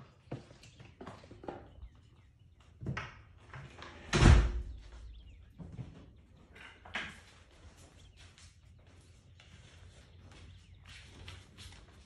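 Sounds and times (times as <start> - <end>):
deer hooves on concrete: 0.0 - 3.4, 4.8 - 12.0.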